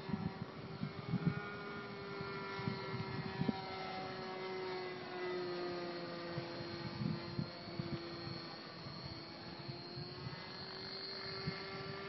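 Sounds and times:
model plane engine whining: 0:00.0 - 0:12.0.

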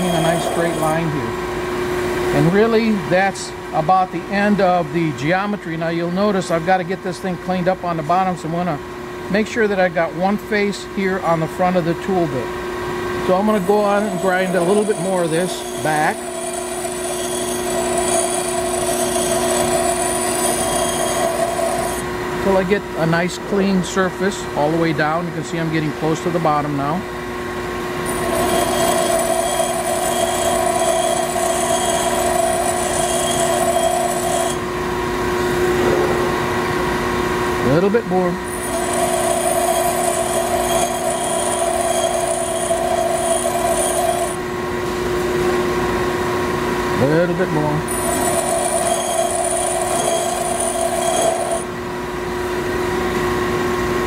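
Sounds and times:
grinder motor hum: 0:00.0 - 0:03.0, 0:11.2 - 0:23.1, 0:27.7 - 0:53.2
grinding whine: 0:00.0 - 0:03.5, 0:11.2 - 0:23.8, 0:26.0 - 0:54.0.

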